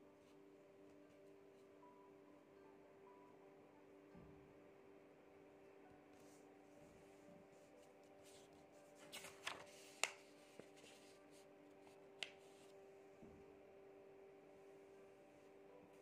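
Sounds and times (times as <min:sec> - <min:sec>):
faint background music: 0:00.0 - 0:16.0
pen and paper clicks and rustles: 0:08.2 - 0:12.7.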